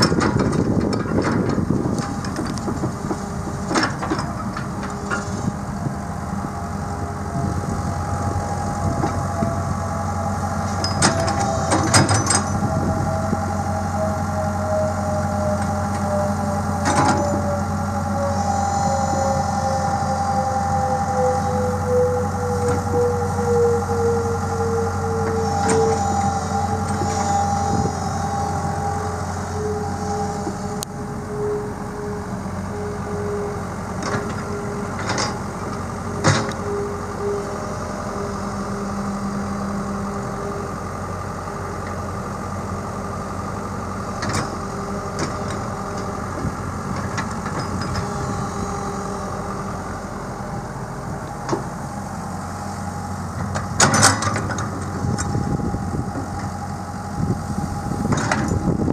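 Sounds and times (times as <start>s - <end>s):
diesel engine idling: 0.0s - 58.9s.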